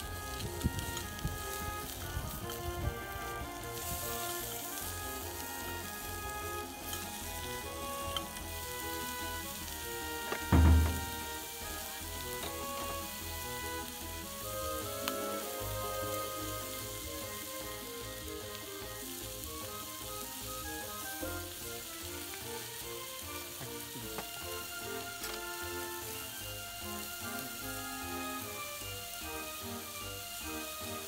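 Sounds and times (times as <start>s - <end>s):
background music: 0.0s - 31.0s
steak sizzling in skillet: 0.0s - 31.0s
loud low thud: 10.5s - 11.4s.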